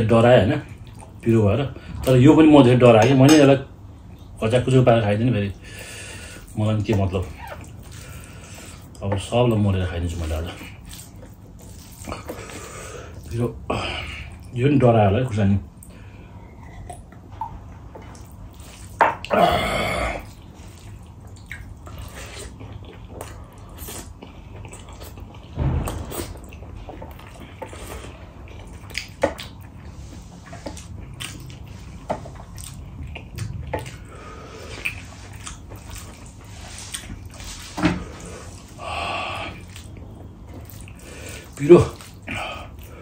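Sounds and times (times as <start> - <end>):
wet chewing and lip-smacking: 0.7 - 1.2, 6.4 - 9.3, 10.2 - 13.4, 20.2 - 38.8, 39.4 - 43.0
fingers squelching through food: 20.2 - 37.6, 39.5 - 43.0
breathy hisses: 38.0 - 39.6.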